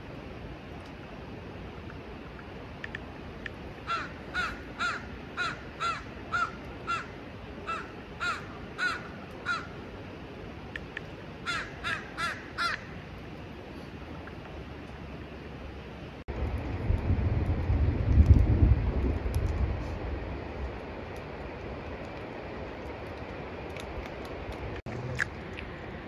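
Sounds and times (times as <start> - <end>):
steady background hiss: 0.0 - 17.7
bird cawing: 3.8 - 9.8, 11.4 - 13.0.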